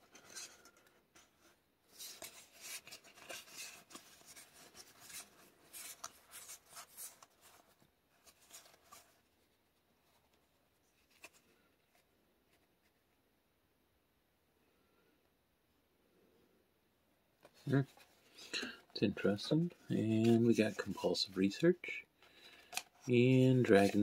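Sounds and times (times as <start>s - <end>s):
cards flipped by hand: 22.4s - 24.0s.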